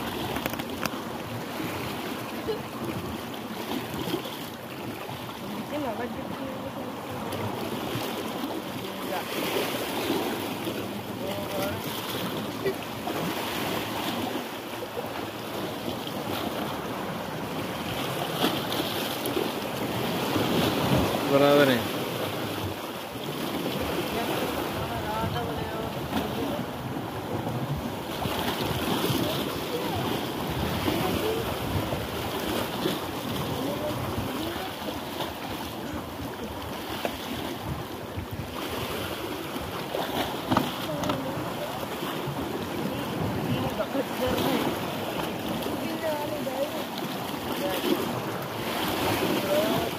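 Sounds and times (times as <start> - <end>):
waves breaking on rocks: 0.0 - 49.9
wind on microphone: 23.4 - 49.9.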